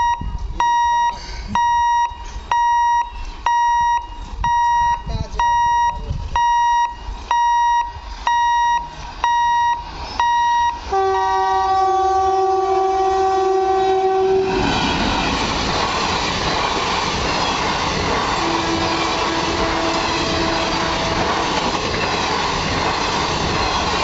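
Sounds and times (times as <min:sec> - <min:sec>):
electronic warning beeps: 0:00.0 - 0:10.8
train rumbling over rails: 0:04.1 - 0:24.0
locomotive horn blast: 0:10.5 - 0:14.7, 0:18.4 - 0:21.4.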